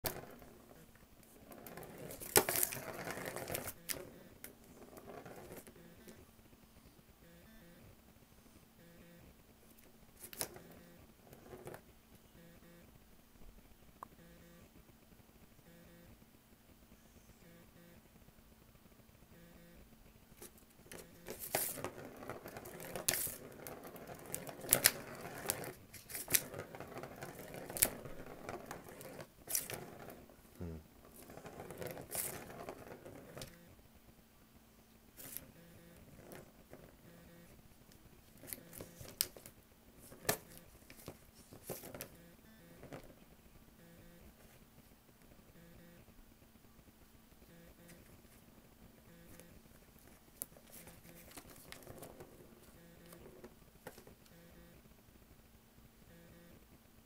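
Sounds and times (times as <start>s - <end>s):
plastic ball rolling in track: 0.0s - 6.3s, 9.8s - 11.9s, 20.4s - 33.8s, 35.1s - 44.6s, 47.4s - 54.9s.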